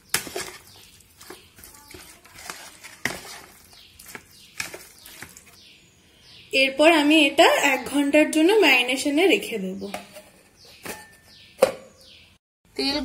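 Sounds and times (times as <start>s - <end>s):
metal spoon stirring meat in marinade: 0.0s - 5.6s.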